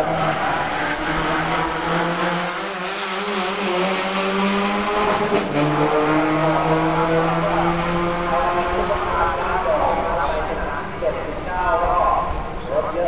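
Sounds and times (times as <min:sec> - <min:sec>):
car passing by rush: 0:00.0 - 0:10.1
race car engine revving: 0:00.0 - 0:12.6.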